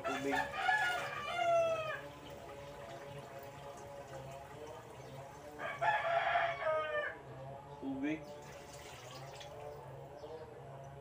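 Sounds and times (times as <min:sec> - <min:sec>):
rooster crowing: 0:00.0 - 0:02.2, 0:05.6 - 0:07.3
water poured into pot: 0:08.4 - 0:09.7.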